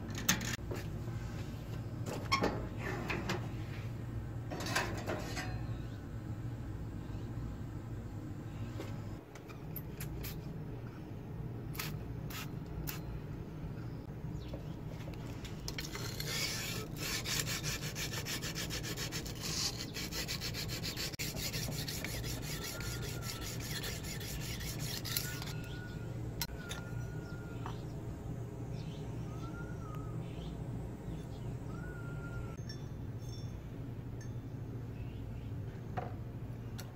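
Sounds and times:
sandpaper rubbing on steel: 15.8 - 25.7.

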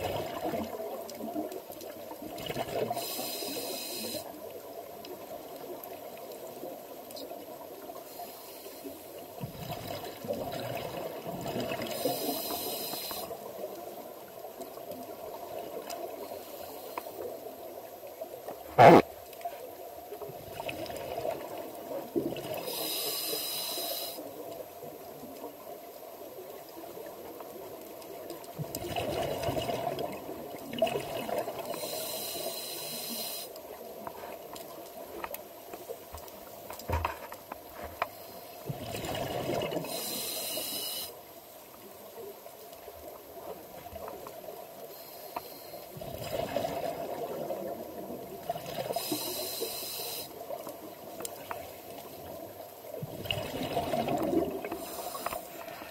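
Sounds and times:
regulator hissing inhalation: 3.0 - 4.3, 12.0 - 13.3, 22.6 - 24.2, 31.7 - 33.5, 39.9 - 41.2, 49.0 - 50.4, 54.8 - 55.5
gurgling bubble bursts: 53.1 - 54.7.

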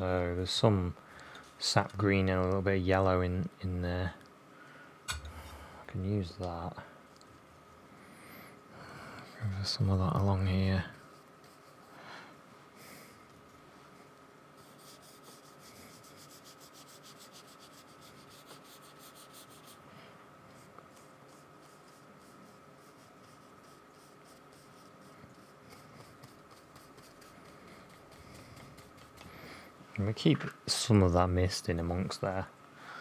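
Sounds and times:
paintbrush scratching on paper: 10.7 - 12.0, 14.6 - 19.8, 20.5 - 29.5.

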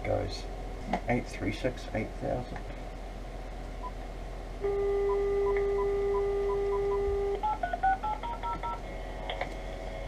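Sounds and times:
dial tone: 4.6 - 8.8.

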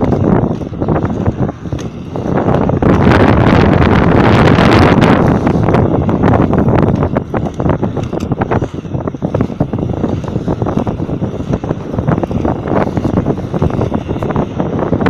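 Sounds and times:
skate wheels rolling on asphalt: 0.0 - 15.0
wind buffeting microphone: 0.0 - 15.0
small clicks and knocks: 6.8 - 8.7.

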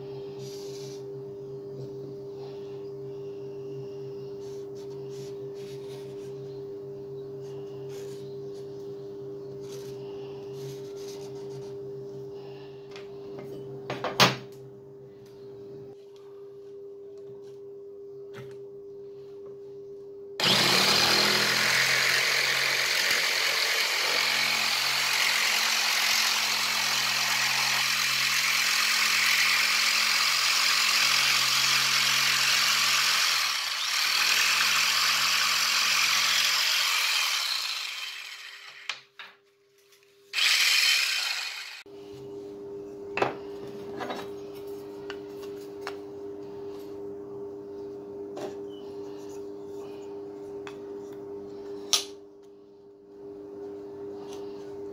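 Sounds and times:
electric jigsaw cutting wood: 20.4 - 39.0, 40.3 - 41.9.

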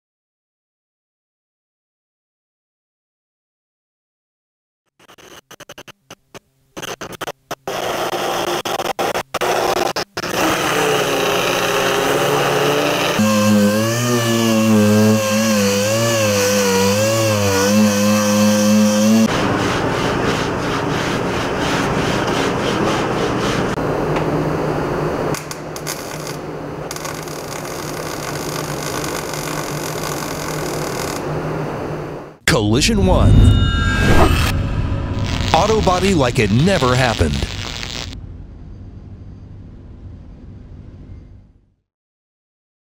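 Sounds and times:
die grinder on sheet metal: 7.7 - 23.8, 25.8 - 31.2
scraping rubbing sound: 19.1 - 23.8
welder crackling sizzle: 25.3 - 31.3, 35.1 - 38.2
machine with wavering pitch: 32.5 - 35.8.

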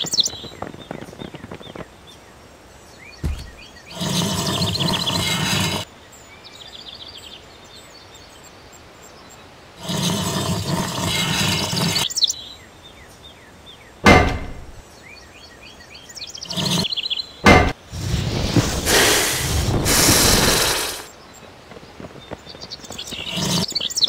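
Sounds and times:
birds chirping: 0.0 - 24.0
sharp knocks: 3.2 - 3.6, 14.0 - 14.8, 17.4 - 17.8.

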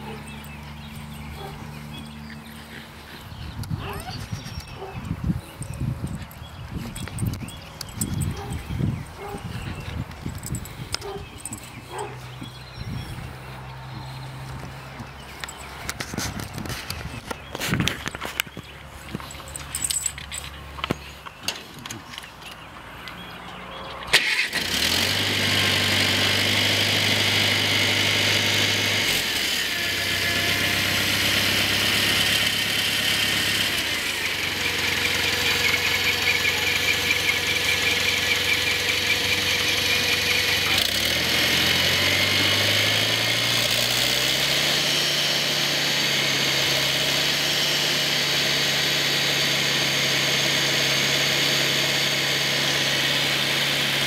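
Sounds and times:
tractor engine starting and running: 0.0 - 54.0.

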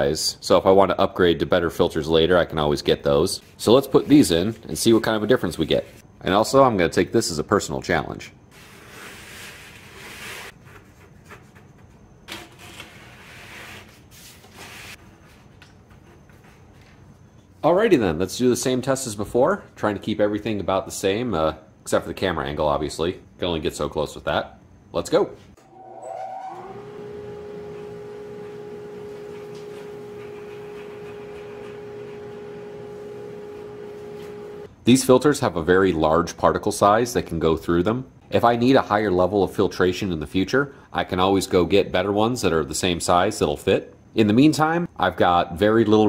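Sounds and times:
dust collector motor whine: 25.6 - 34.7.

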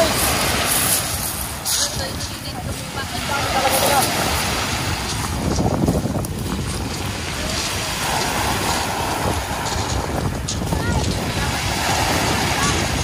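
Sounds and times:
wind buffeting microphone: 0.0 - 13.0
surf breaking on shingle: 3.4 - 13.0.

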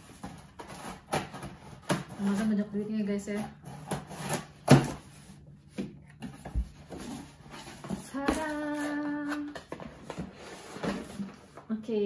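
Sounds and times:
scissors cutting packing tape: 0.2 - 2.5
woman humming: 8.1 - 9.5.

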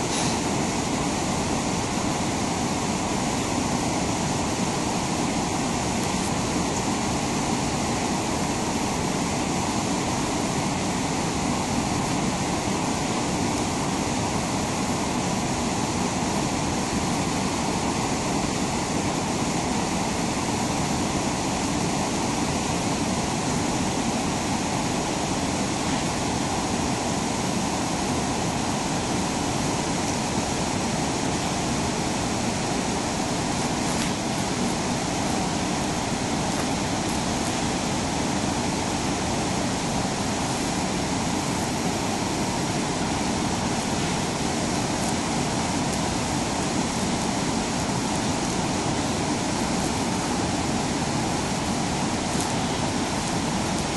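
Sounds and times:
roar of churning water: 0.0 - 53.9.

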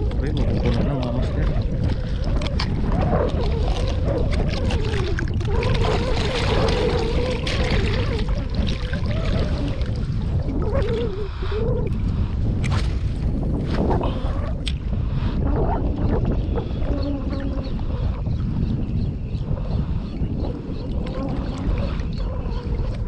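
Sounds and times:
wavering hum: 0.0 - 14.8
water sloshing and splashing: 0.0 - 15.0, 20.8 - 23.0
wind rumble on microphone: 0.0 - 23.0.

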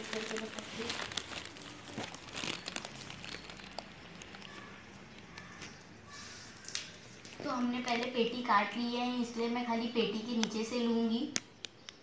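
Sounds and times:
cloth rustling and crinkling: 0.0 - 5.8.

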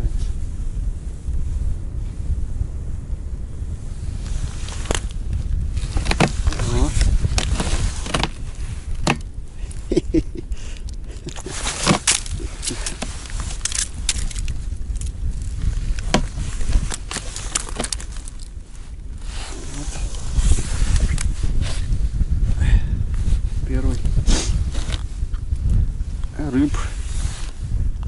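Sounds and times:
low rumble: 0.0 - 28.0
clothing rustle: 4.1 - 9.2, 11.1 - 21.9
fish flopping on ice: 11.3 - 18.5.

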